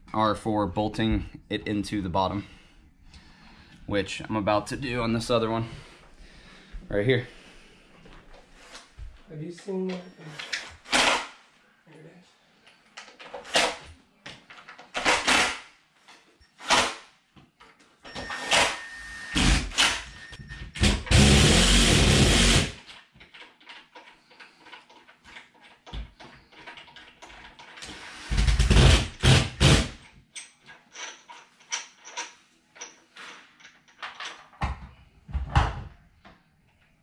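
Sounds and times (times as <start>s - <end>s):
cordless drill driving screws: 10.4s - 11.3s, 15.0s - 15.6s, 18.1s - 20.1s, 20.8s - 22.8s, 27.8s - 29.9s
sharp knocks and handling clatter: 12.6s - 15.4s, 22.8s - 29.2s, 30.0s - 36.9s.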